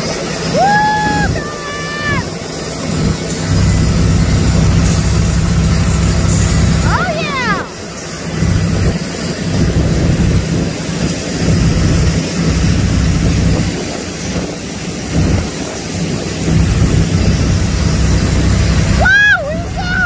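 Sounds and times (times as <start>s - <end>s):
boat wake churning: 0.0s - 20.0s
motorboat engine running: 0.0s - 20.0s
wind on microphone: 8.2s - 20.0s.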